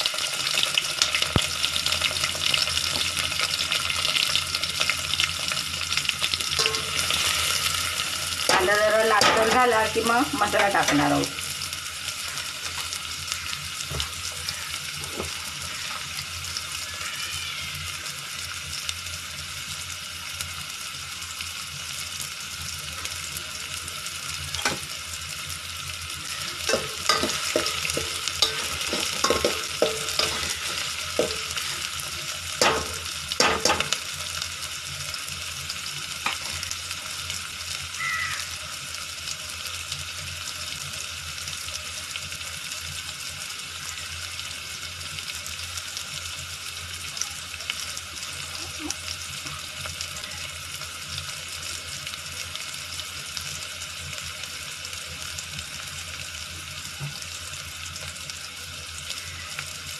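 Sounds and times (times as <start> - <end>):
onions sizzling in hot oil: 0.0 - 59.9
steel spoon scraping a pot: 6.6 - 9.5, 26.4 - 32.1.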